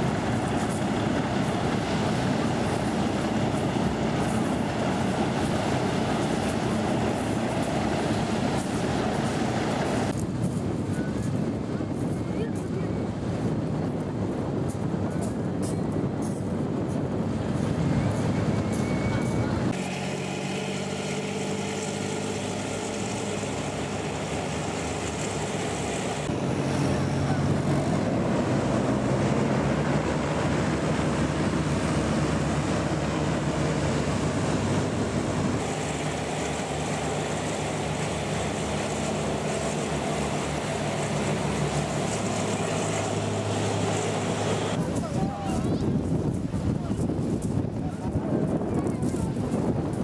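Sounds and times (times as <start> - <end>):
hovercraft engines droning: 0.0 - 50.0.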